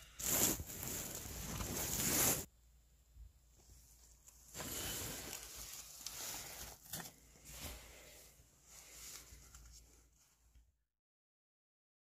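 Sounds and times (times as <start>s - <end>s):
bedding rustling: 0.1s - 2.5s, 3.6s - 10.5s.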